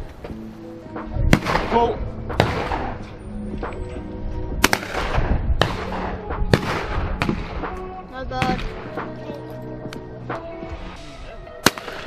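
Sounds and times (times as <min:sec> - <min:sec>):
background music: 0:00.0 - 0:12.0
shotgun shots with echo: 0:01.3 - 0:03.0, 0:04.6 - 0:07.8, 0:11.6 - 0:12.0.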